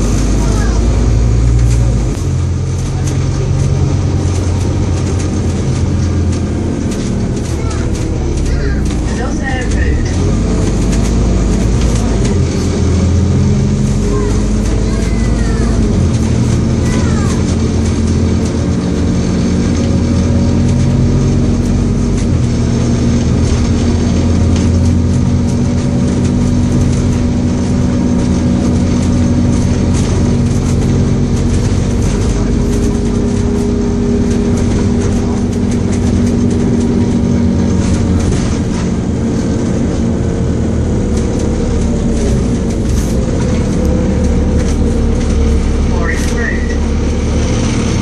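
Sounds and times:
bus diesel engine humming: 0.0 - 48.0.

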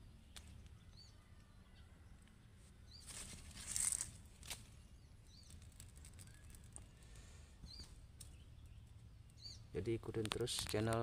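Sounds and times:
rustle: 2.2 - 11.0.

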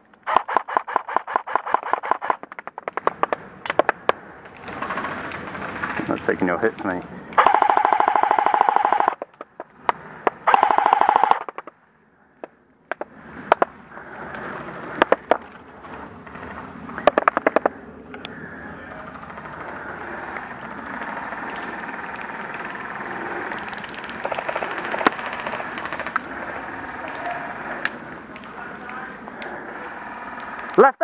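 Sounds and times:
airsoft rifle firing bursts: 0.2 - 2.4, 4.7 - 6.6, 7.4 - 9.3, 10.3 - 11.7, 19.2 - 27.8.

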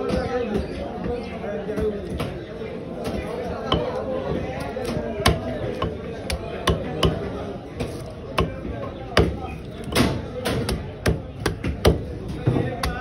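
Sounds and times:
knife chopping fish on wooden block: 4.8 - 12.1.

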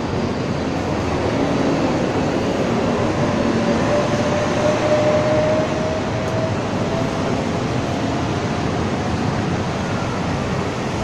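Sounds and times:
city street traffic roar: 0.0 - 11.0.

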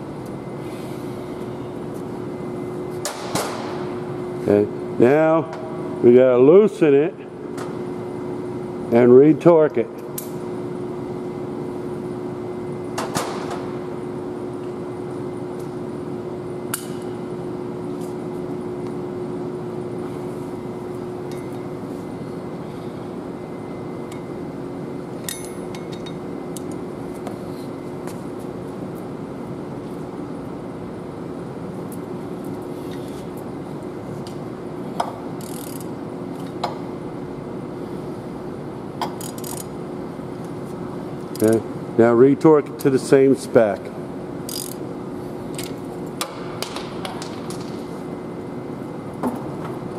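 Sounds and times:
workshop hum: 0.0 - 49.9
wrench clicking on metal bolts: 39.0 - 39.7.

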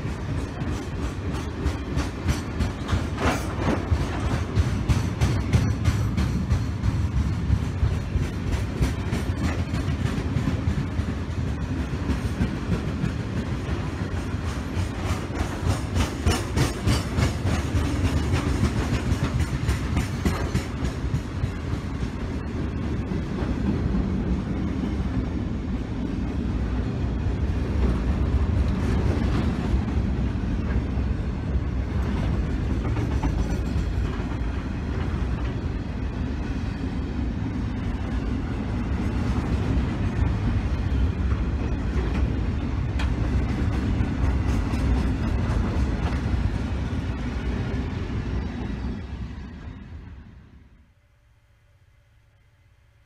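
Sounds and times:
train wheels rumbling on rail: 0.0 - 51.0.

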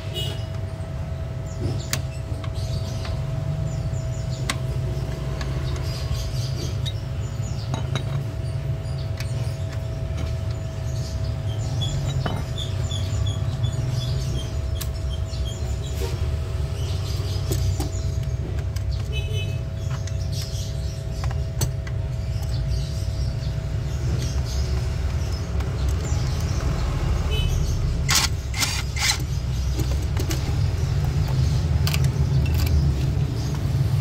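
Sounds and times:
bird chirping: 0.1 - 34.0.

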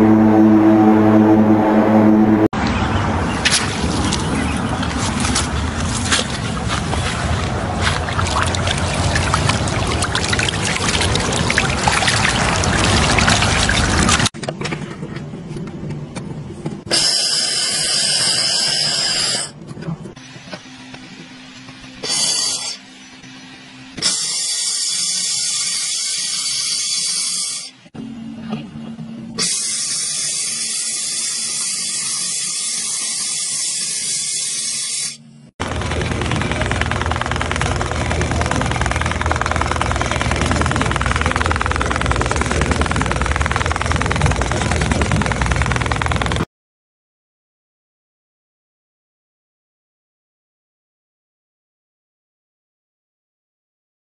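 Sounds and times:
low hum: 0.0 - 16.9, 35.3 - 46.5
fish thrashing in water: 3.4 - 14.3
water splashing and trickling: 3.4 - 14.3
laser torch hissing: 22.0 - 22.8.

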